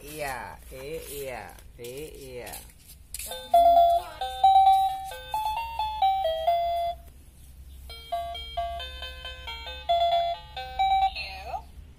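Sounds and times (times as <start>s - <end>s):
toy laptop beeping melody: 3.4s - 7.1s, 7.9s - 11.6s.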